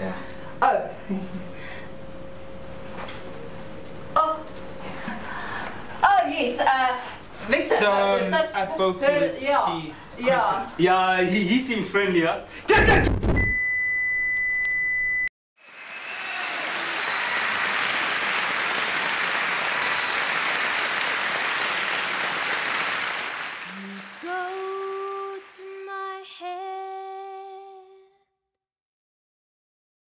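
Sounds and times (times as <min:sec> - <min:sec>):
high beep: 0:13.4 - 0:15.3
applause: 0:15.6 - 0:25.9.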